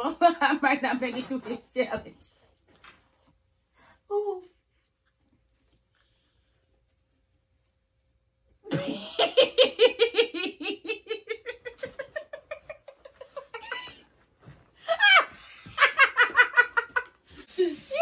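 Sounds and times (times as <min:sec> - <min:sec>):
woman laughing hard: 0:08.8 - 0:14.1, 0:14.8 - 0:17.1.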